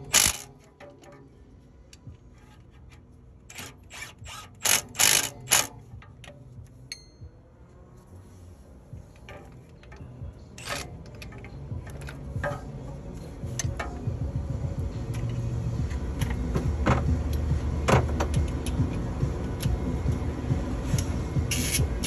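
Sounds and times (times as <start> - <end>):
metal tool clicks and knocks: 9.2 - 12.8.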